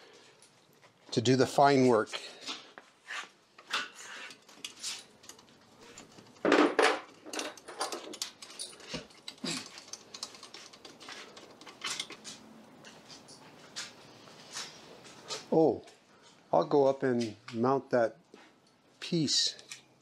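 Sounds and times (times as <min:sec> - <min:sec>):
metal rail clicks and rattles: 0:03.8 - 0:12.4.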